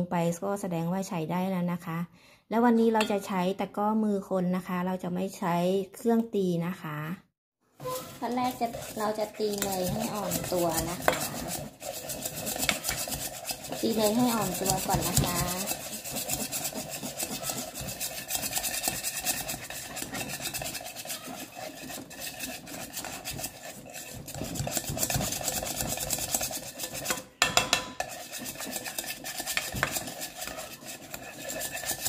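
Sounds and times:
whisk scraping metal bowl: 7.8 - 32.0.

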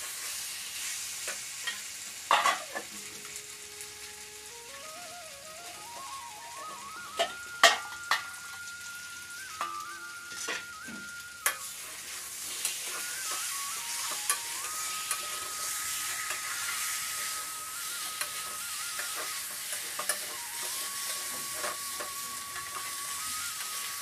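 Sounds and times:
spice paste sizzling in pan: 0.0 - 24.0.

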